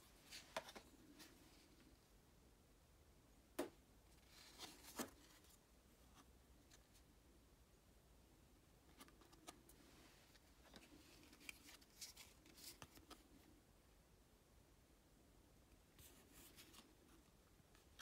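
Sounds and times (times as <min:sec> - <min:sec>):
cards shuffling and sliding: 0:04.2 - 0:05.6, 0:08.9 - 0:13.5.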